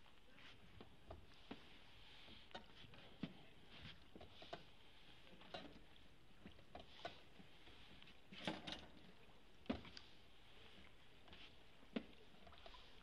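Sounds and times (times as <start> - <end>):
faint steady hiss: 0.0 - 13.0
oar splashing in water: 5.4 - 13.0.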